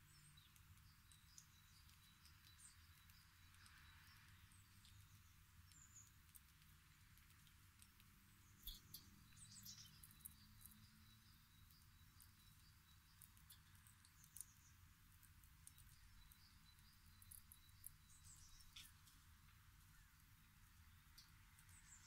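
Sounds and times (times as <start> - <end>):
faint bird chirps: 0.0 - 22.0
soft clicks: 0.4 - 10.8.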